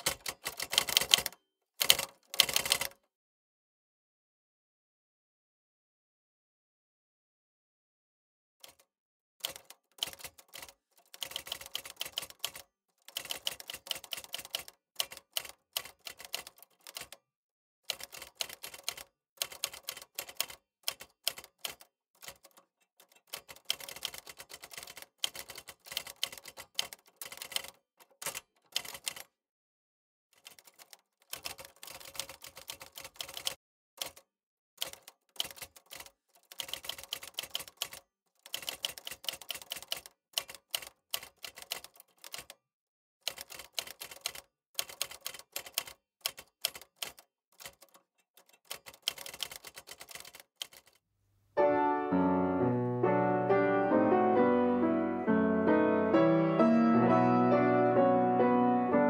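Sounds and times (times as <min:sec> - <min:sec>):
typewriter keys clacking: 0:00.0 - 0:03.0, 0:09.4 - 0:17.2, 0:17.9 - 0:29.3, 0:30.4 - 0:34.2, 0:34.8 - 0:42.6, 0:43.3 - 0:51.0.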